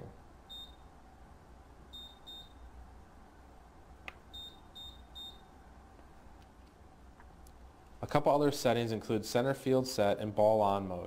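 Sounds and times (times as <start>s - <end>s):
short high keypad beeps: 0.5s - 0.8s, 2.0s - 2.6s, 4.3s - 5.5s.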